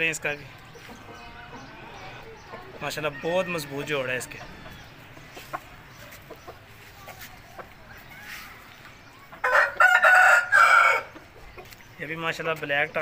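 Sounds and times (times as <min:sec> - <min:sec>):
rooster crowing: 0:09.4 - 0:11.1.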